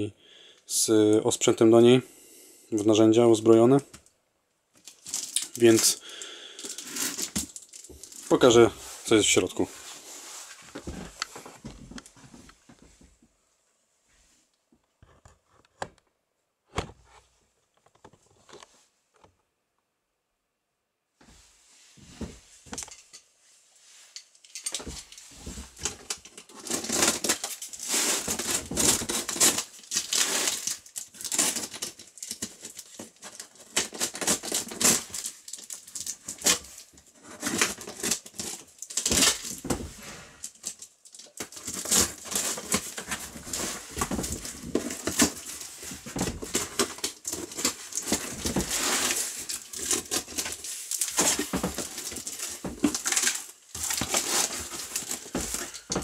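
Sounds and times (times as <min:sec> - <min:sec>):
packing tape tearing off cardboard: 0:04.8 - 0:08.5, 0:24.5 - 0:56.0
cardboard flaps rustling: 0:39.0 - 0:40.4, 0:41.5 - 0:56.0.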